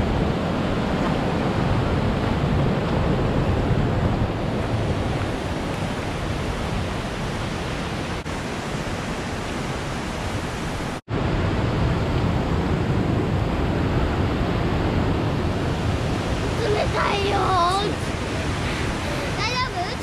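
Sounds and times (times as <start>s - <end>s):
waterfall rushing: 15.2s - 20.0s.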